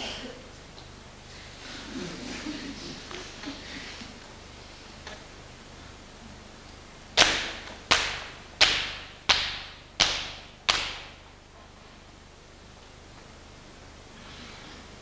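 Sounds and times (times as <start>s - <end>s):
hand claps in a hall: 7.2s - 11.3s.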